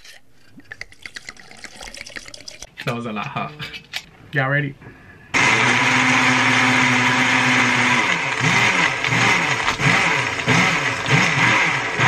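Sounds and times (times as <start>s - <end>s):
blender crushing ice: 5.4s - 12.0s.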